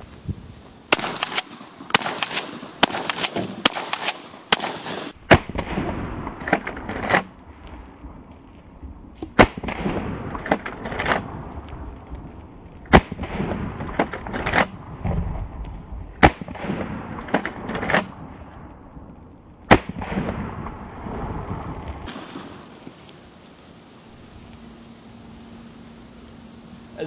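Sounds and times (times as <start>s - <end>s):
shotgun shots: 0.9s - 7.3s, 16.2s - 18.2s, 19.7s - 20.7s.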